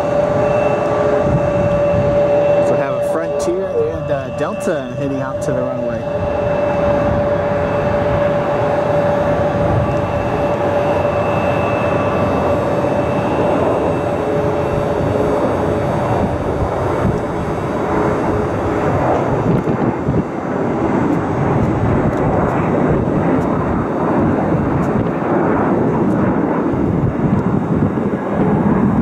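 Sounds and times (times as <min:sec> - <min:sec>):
faint steady tones: 0:00.0 - 0:19.3
jet engines roaring: 0:00.0 - 0:29.0.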